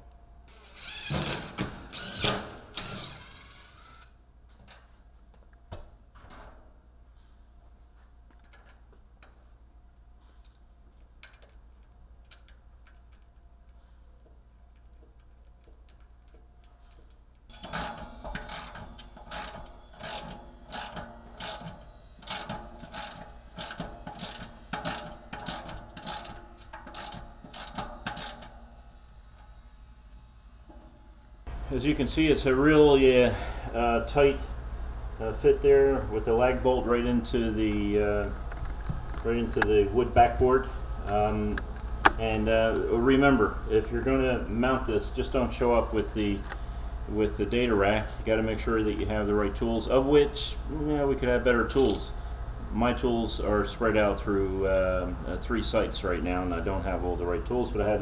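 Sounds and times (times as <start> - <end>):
tools and hardware scraping and rattling: 16.8 - 29.6, 51.7 - 52.1
hand ratchet clicking: 17.6 - 28.6, 51.7 - 52.1.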